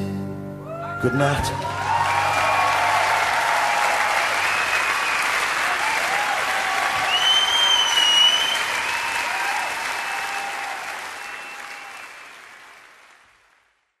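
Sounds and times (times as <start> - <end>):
audience applauding and cheering: 0.6 - 14.0
long whistle: 4.4 - 5.3, 7.0 - 12.0.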